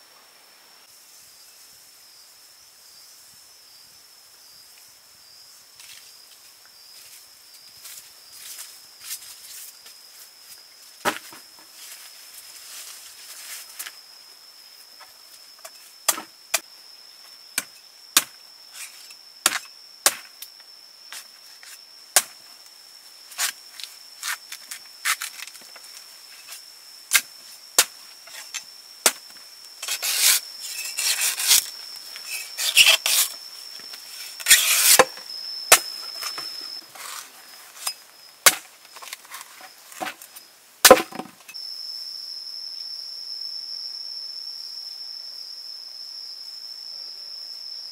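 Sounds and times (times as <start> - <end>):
high insect trill: 0.0 - 47.9
knife chopping coconut husk: 16.1 - 16.6, 19.4 - 20.3, 40.9 - 41.3
knife shaving strokes: 29.8 - 33.4, 34.1 - 35.1.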